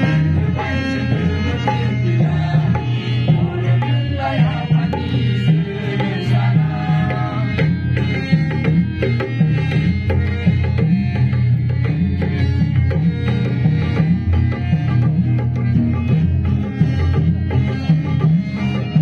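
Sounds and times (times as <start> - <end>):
group singing into a microphone: 0.0 - 8.5.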